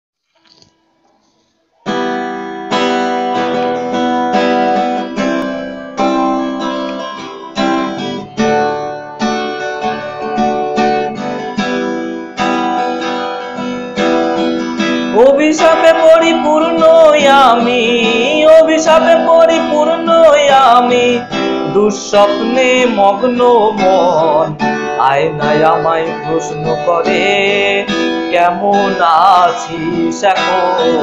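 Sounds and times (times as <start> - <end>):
acoustic guitar chords: 1.2 - 31.0.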